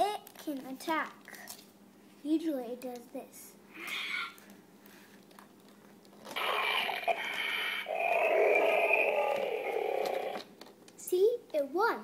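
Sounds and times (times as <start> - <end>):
imitation dinosaur roar: 6.4 - 10.4.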